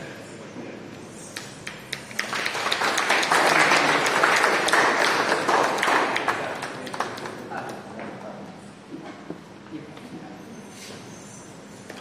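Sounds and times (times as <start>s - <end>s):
audience applauding: 1.6s - 7.5s.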